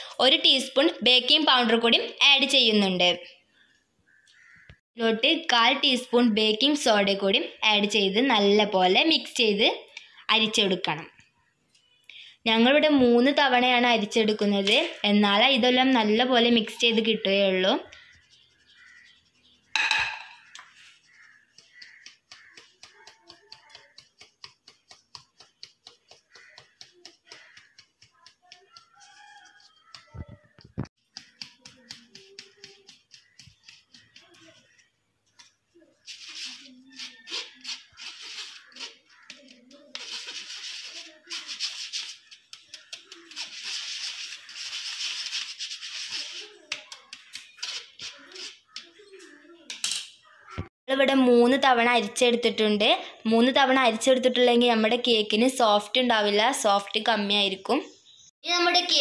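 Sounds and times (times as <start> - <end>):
spoon rasping through mesh sieve: 17.8 - 49.1.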